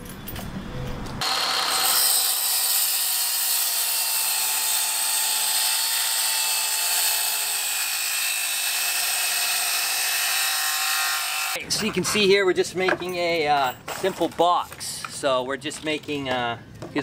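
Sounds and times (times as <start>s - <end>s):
circular saw cutting wood: 1.2s - 11.6s.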